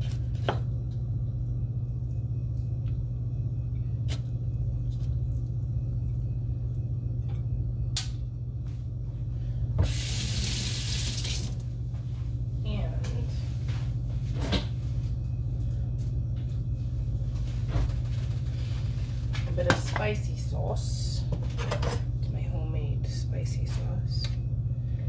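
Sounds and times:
steady low hum: 0.0 - 25.0
tap water running: 9.8 - 11.7.

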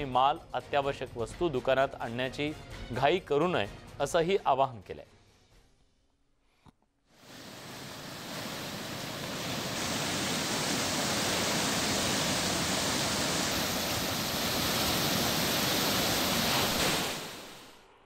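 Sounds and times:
floodwater rushing: 7.2 - 17.8.

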